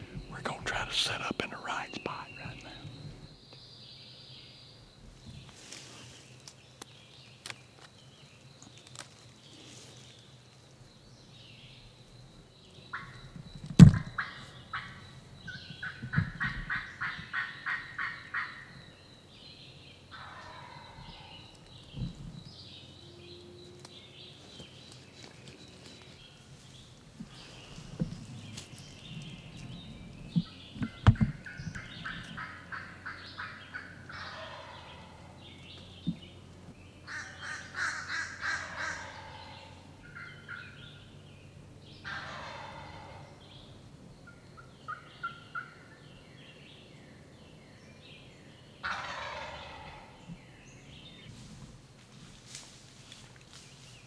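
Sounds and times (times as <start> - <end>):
turkey gobbling: 15.8 - 18.7, 20.1 - 21.3, 31.2 - 35.2, 37.1 - 40.7, 42.1 - 43.2, 44.6 - 45.8, 48.8 - 50.2.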